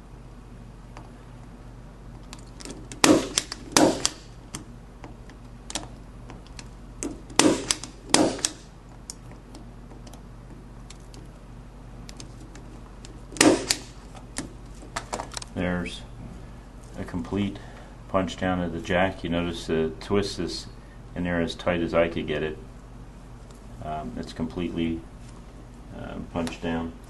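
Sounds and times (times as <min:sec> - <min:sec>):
punch-down tool snapping: 0:02.2 - 0:10.2, 0:13.0 - 0:15.5.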